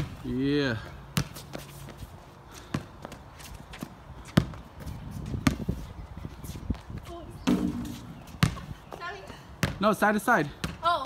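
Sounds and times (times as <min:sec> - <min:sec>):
basketball bouncing on concrete: 0:00.0 - 0:00.2, 0:01.1 - 0:01.6, 0:03.8 - 0:05.8, 0:07.4 - 0:11.0.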